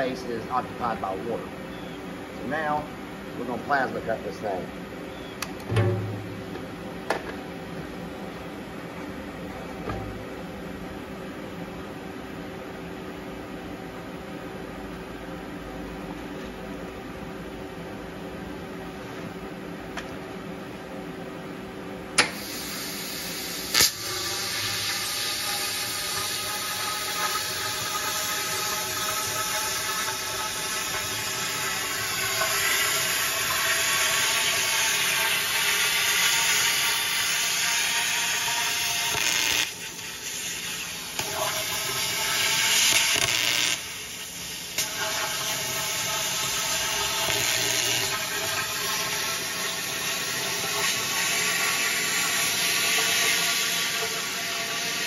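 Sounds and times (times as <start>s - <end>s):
plasma cutter hissing: 22.3s - 48.5s
sharp crack: 23.7s - 24.0s.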